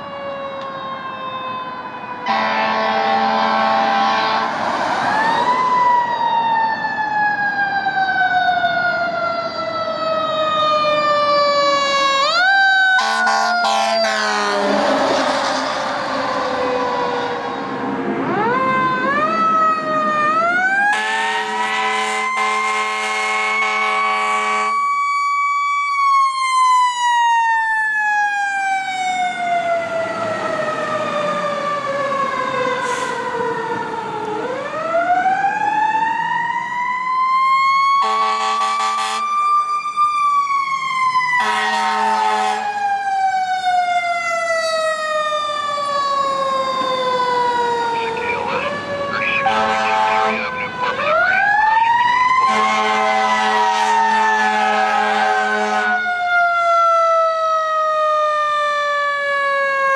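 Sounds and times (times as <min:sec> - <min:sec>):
fire engine siren wailing: 0:00.0 - 0:59.9
air horn blasts: 0:02.3 - 0:04.5, 0:13.0 - 0:14.8, 0:20.9 - 0:24.8, 0:38.0 - 0:39.3, 0:41.4 - 0:42.7, 0:49.4 - 0:50.6, 0:52.5 - 0:56.0.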